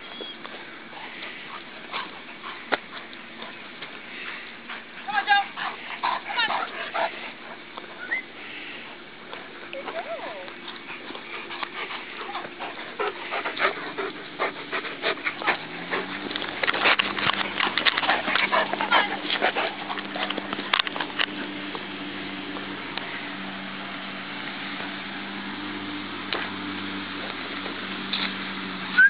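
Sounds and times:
steady low hum: 0.0s - 29.0s
dog panting: 0.8s - 21.6s.

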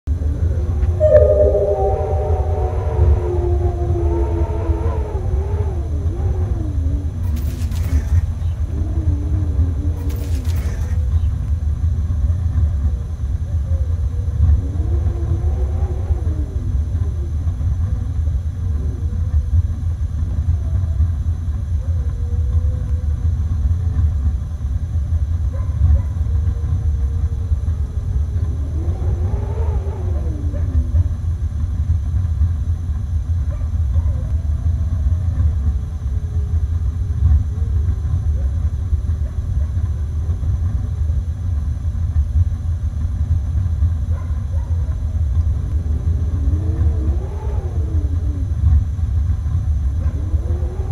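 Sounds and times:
wolves howling: 0.1s - 11.3s, 13.4s - 19.5s, 20.2s - 23.1s, 25.6s - 31.3s, 44.1s - 50.9s
snowstorm wind rumble: 0.1s - 50.9s.

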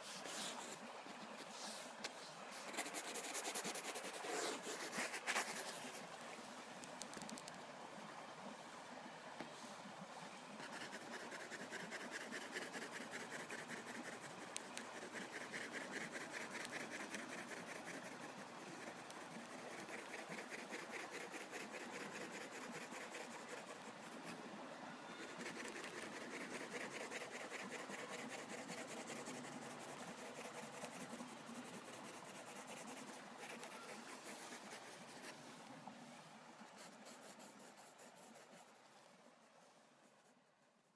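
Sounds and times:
pencil scratching on paper: 2.7s - 5.7s, 25.3s - 35.3s.

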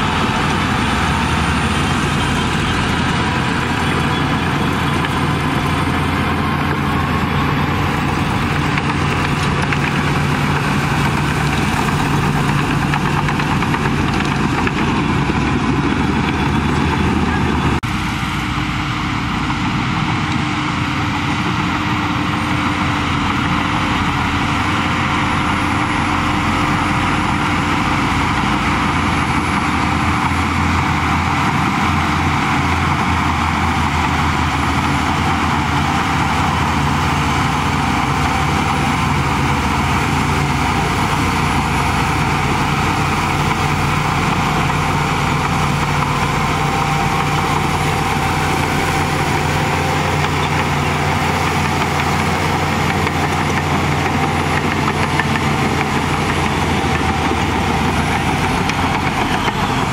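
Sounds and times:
bulldozer diesel engine running: 0.0s - 59.9s
blade pushing soil: 23.3s - 59.9s.

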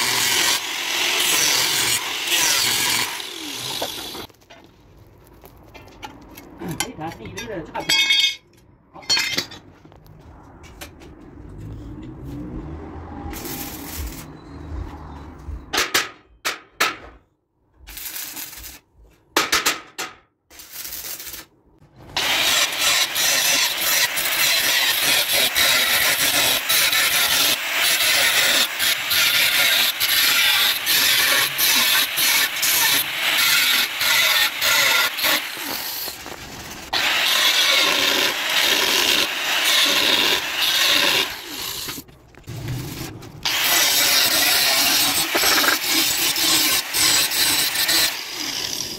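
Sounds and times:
angle grinder cutting steel: 0.0s - 4.3s, 22.2s - 42.0s, 43.4s - 48.9s.

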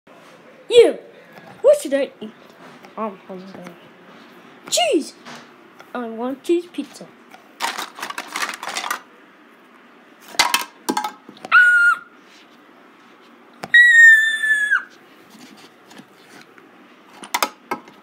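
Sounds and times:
plastic toys clattering: 7.6s - 9.1s, 10.2s - 11.3s, 17.1s - 18.0s.

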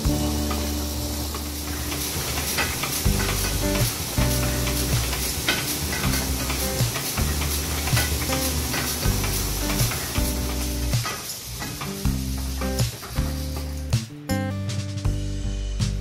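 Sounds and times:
inking rollers crackling: 0.0s - 13.9s
background music low notes: 0.0s - 16.0s
printing press mechanism clicks: 1.3s - 13.4s.

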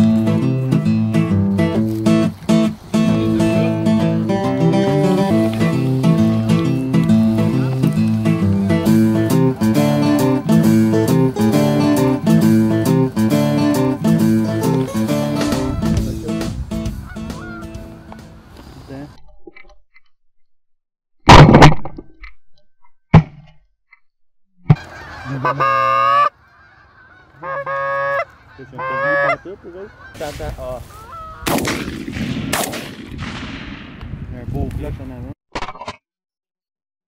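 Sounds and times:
guitar tune: 0.0s - 18.4s
goose honking: 1.6s - 16.1s, 16.9s - 18.2s, 24.8s - 31.4s.

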